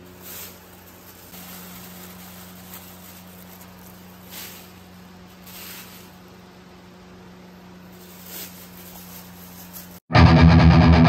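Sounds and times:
soft rustles and scrapes: 0:00.0 - 0:06.3, 0:07.9 - 0:10.0.

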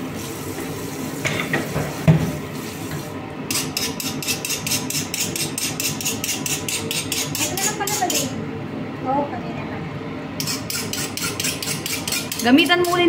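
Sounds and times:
scraping fish scales: 0:10.4 - 0:12.8.

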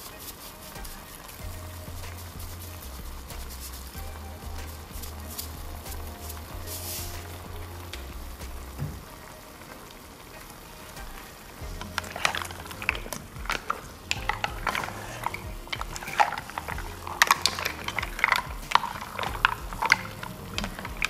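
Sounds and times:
mussel shells clacking: 0:11.7 - 0:21.0.

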